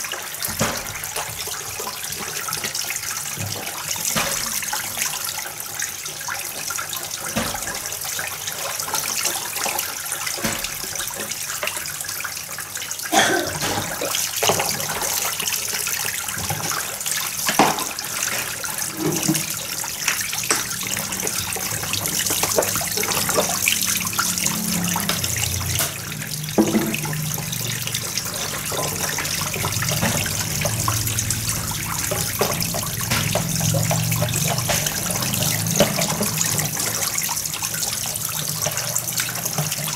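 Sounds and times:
water splashing and trickling: 0:00.0 - 0:39.9
dishes clinking and knocking: 0:17.5 - 0:19.8, 0:26.6 - 0:27.5, 0:28.4 - 0:36.9.

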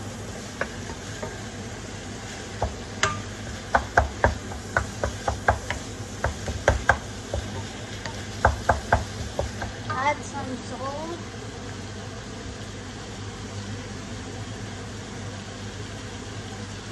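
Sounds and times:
steady low hum: 0:00.0 - 0:16.9
spatula knocking and scraping wok: 0:00.2 - 0:01.6, 0:02.2 - 0:10.0.

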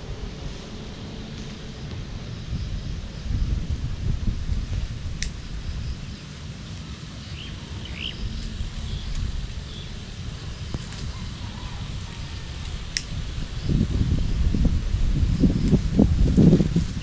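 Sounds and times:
wind buffeting microphone: 0:00.0 - 0:17.0
sharp tick: 0:05.2 - 0:05.4
bird chirps: 0:07.2 - 0:09.1.

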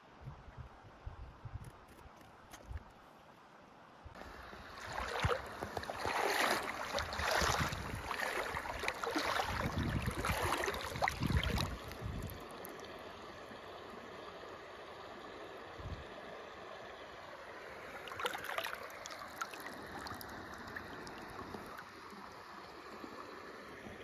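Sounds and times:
stream running: 0:04.1 - 0:24.0
water sloshing and splashing: 0:04.2 - 0:13.0, 0:17.6 - 0:23.1.

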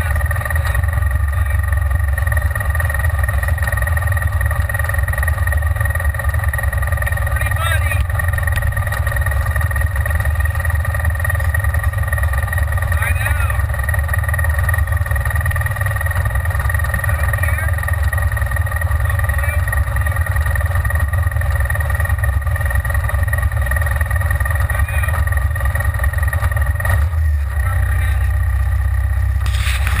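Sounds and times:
engine running low rumble: 0:00.0 - 0:30.0.

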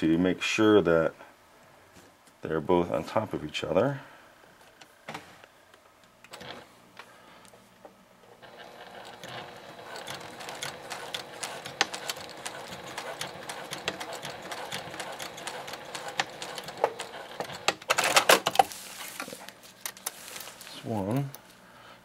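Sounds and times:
sewing machine stitching: 0:08.4 - 0:18.4
tarp fabric rustling: 0:18.7 - 0:20.9.

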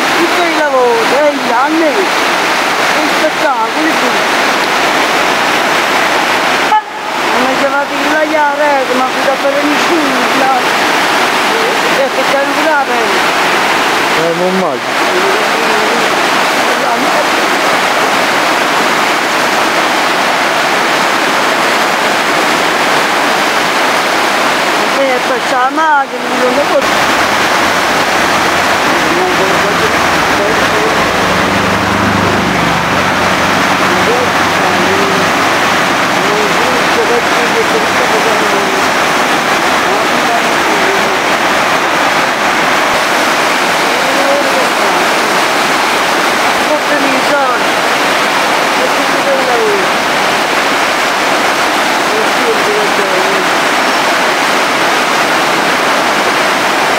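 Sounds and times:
floodwater rushing and churning: 0:00.0 - 0:56.9.

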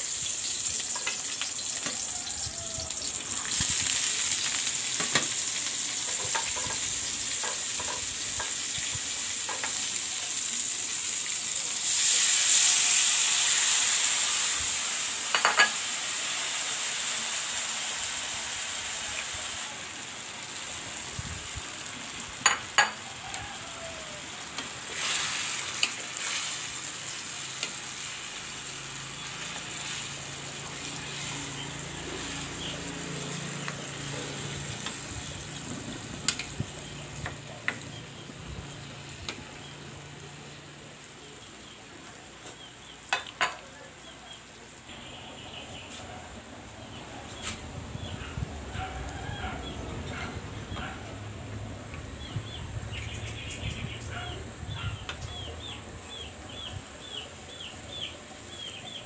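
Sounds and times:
sauce sizzling in a wok: 0:00.0 - 0:47.4
utensils knocking against wok: 0:06.1 - 0:08.6, 0:15.3 - 0:15.8, 0:22.4 - 0:23.0.

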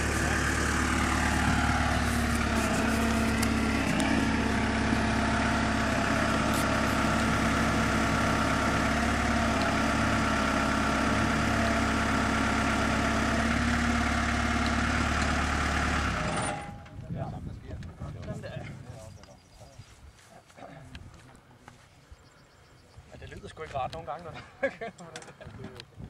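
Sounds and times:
engine idling: 0:00.0 - 0:16.6.

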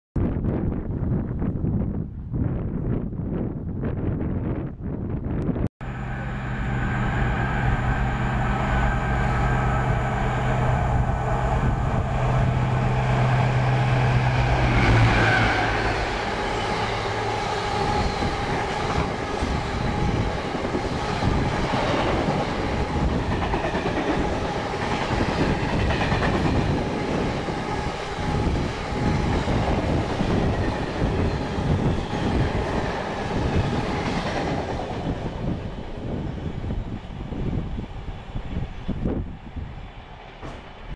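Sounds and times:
locomotive engine drone: 0:05.8 - 0:25.6
train wheel clatter: 0:40.2 - 0:40.9.

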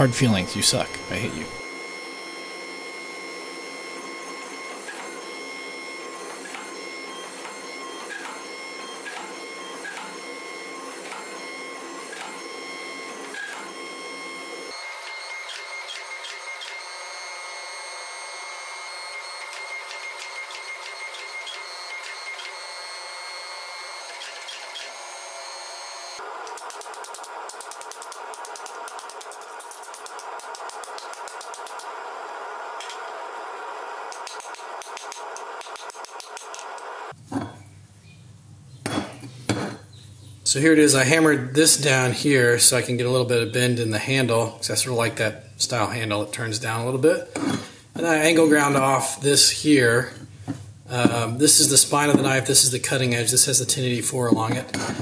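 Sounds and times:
hydraulic press whirring: 0:00.0 - 0:37.4, 0:49.7 - 0:55.0.

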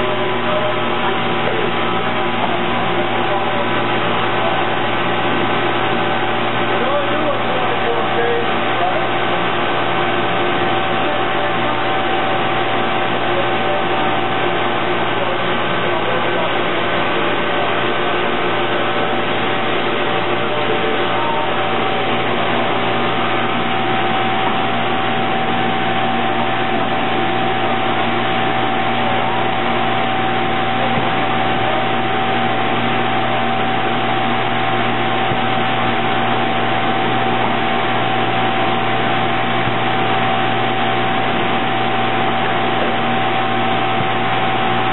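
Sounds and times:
machine whirring and humming: 0:00.0 - 0:44.9.

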